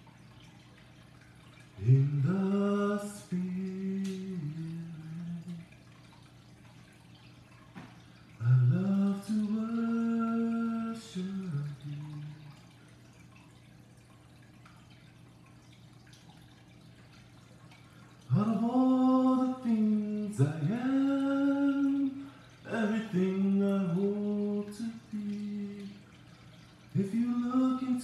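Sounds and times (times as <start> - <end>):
man singing unaccompanied: 1.8 - 5.7, 8.4 - 12.6, 18.3 - 26.1, 26.9 - 28.0.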